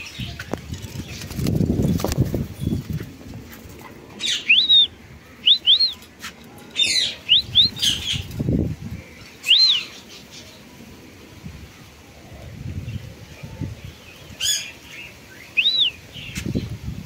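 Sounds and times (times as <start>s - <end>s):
wings flapping: 0.4s - 4.2s.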